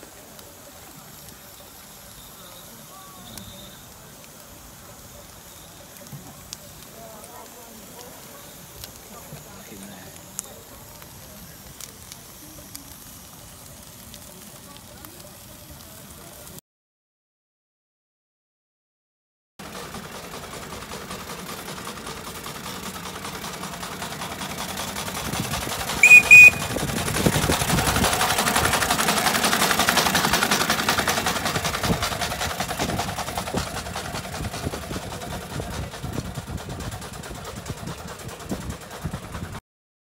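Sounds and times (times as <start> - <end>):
steam engine chuffing: 0.1 - 16.5, 19.6 - 39.6
high-pitched whistle toots: 26.0 - 26.7.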